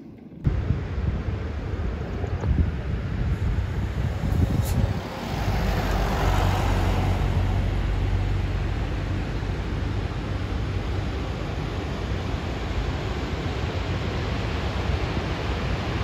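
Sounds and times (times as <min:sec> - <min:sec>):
car tyres and engine rumble: 0:00.0 - 0:16.0
rushing air: 0:00.4 - 0:16.0.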